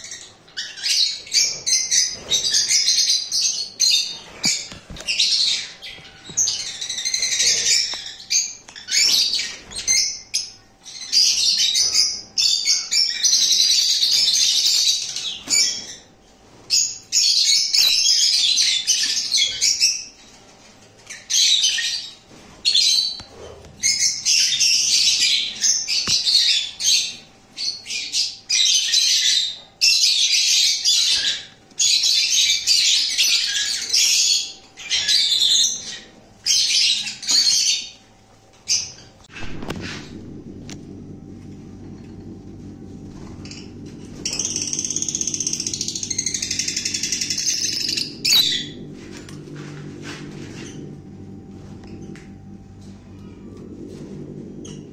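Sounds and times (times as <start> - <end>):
lovebirds chattering and squawking: 38.8 - 54.9.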